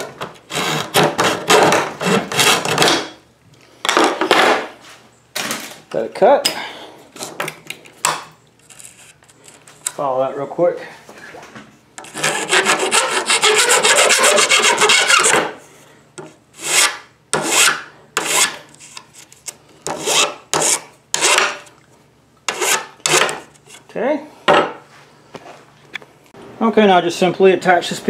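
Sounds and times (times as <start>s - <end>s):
hand file rasping on metal: 12.0s - 15.4s, 19.9s - 21.6s, 22.5s - 23.3s.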